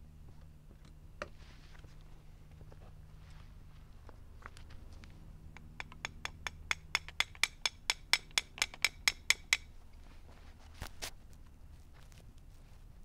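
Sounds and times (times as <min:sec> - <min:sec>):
metal rod tapping ingot: 0:05.6 - 0:09.7.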